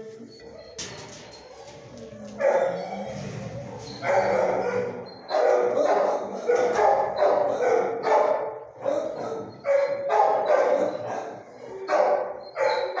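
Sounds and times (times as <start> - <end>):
dog barking: 2.4 - 2.8, 4.0 - 13.0.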